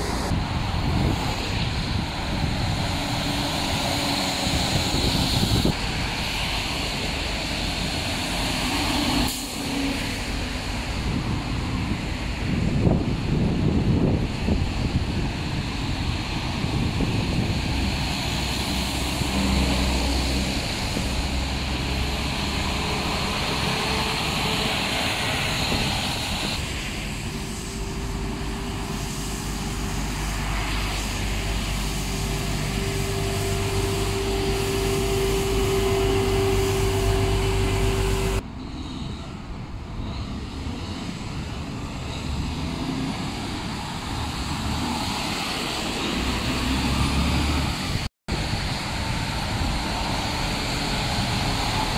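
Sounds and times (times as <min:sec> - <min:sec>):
traffic on wet pavement: 0:00.0 - 0:51.9
steady whine: 0:14.4 - 0:38.5.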